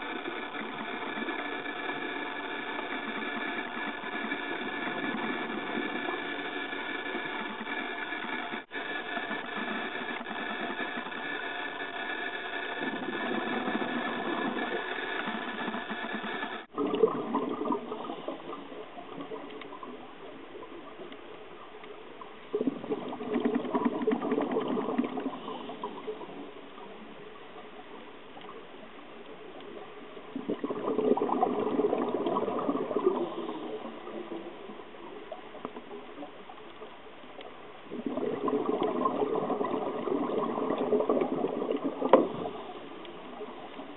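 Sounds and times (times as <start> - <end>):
steady multi-tone hum: 0.0 - 43.9
scuba exhalation bubbles gurgling: 12.7 - 20.7, 22.5 - 26.6, 30.3 - 36.3, 37.8 - 43.9.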